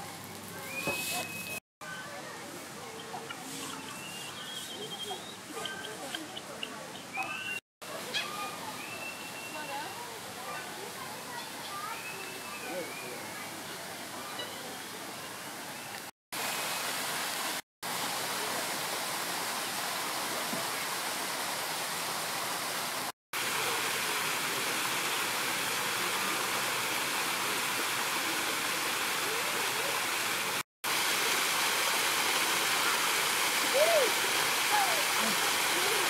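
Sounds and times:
rush of falling water: 0:00.0 - 0:36.0.

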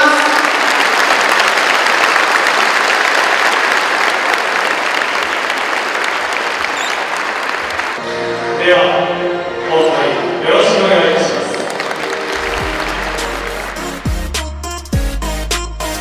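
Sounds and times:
audience applauding: 0:00.0 - 0:08.0, 0:11.1 - 0:14.6.

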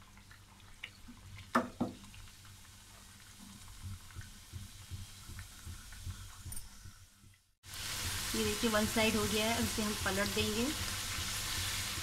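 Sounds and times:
dough frying in hot oil: 0:00.0 - 0:12.0.

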